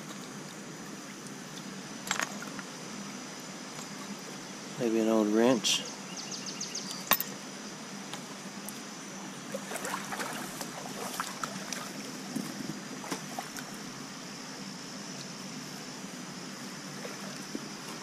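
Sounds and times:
light knocks and splashes: 9.5s - 13.7s.

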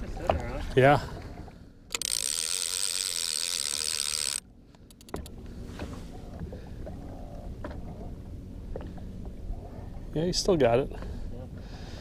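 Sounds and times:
water noise: 0.0s - 12.0s
fishing reel whirring: 1.9s - 5.3s.

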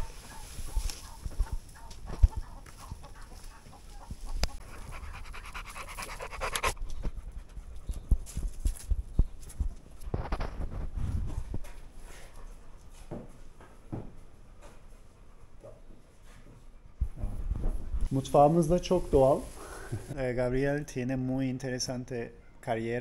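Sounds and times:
animal panting: 1.0s - 9.4s, 14.2s - 17.2s.

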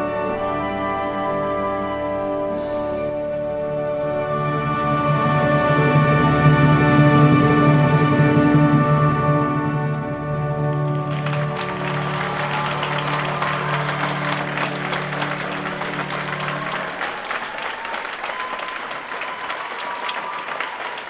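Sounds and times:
audience applauding: 10.5s - 21.0s.

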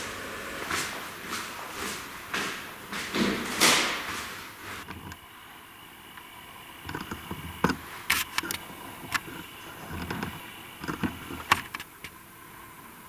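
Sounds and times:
steady low hum: 0.0s - 13.0s
sharp clicks and knocks: 6.8s - 12.2s.

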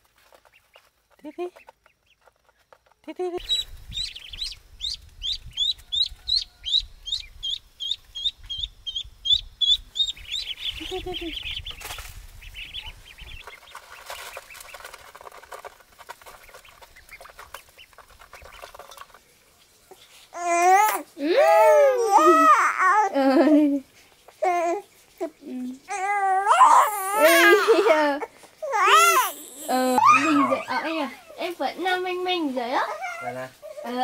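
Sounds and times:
ducklings peeping: 0.3s - 2.7s, 3.4s - 19.0s
child crying and babbling: 20.4s - 23.2s, 25.9s - 30.8s.

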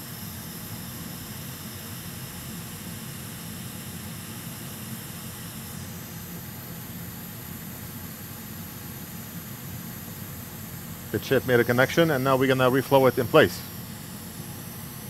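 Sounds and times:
hot air blower hissing: 10.3s - 15.0s.

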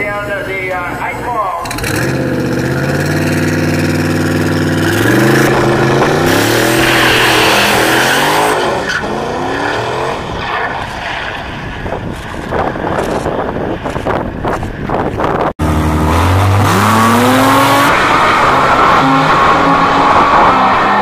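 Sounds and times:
racing car engine revving: 1.6s - 11.2s, 15.6s - 21.0s.

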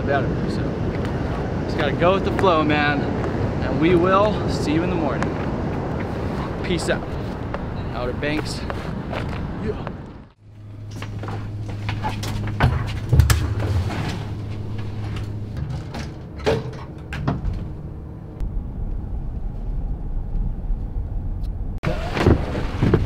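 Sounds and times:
elevator rumble: 9.3s - 23.0s
elevator hum: 10.0s - 22.2s
elevator doors clicking and clunking: 10.9s - 17.9s.

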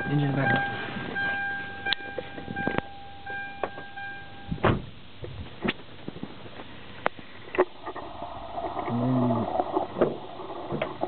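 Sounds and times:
car electronic warning tone: 0.0s - 4.8s
knocks and clunks: 9.9s - 11.0s.

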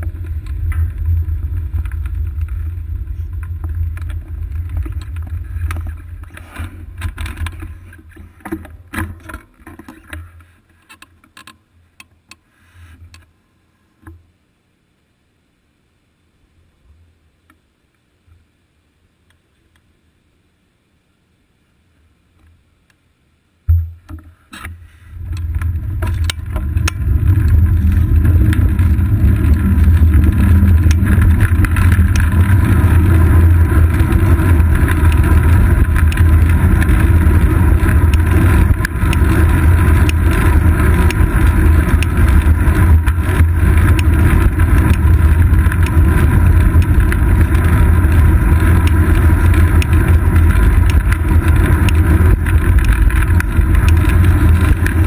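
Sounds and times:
road rumble: 0.0s - 11.0s, 23.7s - 55.0s.

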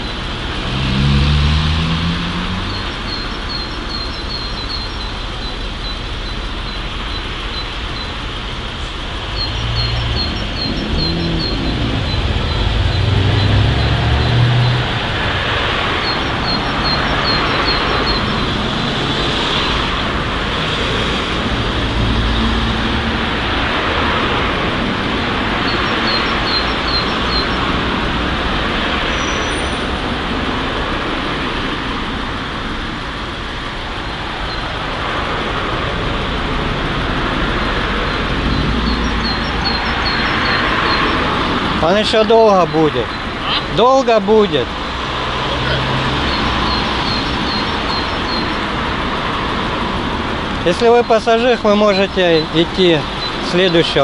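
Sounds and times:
cars passing: 0.0s - 54.0s
deep engine rumble: 0.0s - 54.0s
high bird chirps: 2.6s - 14.9s, 15.8s - 18.4s, 25.6s - 27.7s, 38.0s - 43.8s, 46.1s - 48.7s.

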